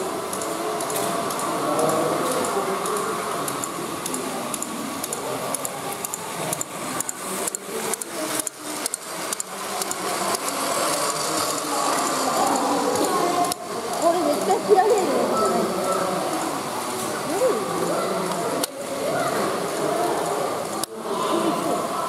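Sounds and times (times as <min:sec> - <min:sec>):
wheels clicking over track joints: 0:00.0 - 0:15.3
toy train motor whine: 0:00.0 - 0:16.6.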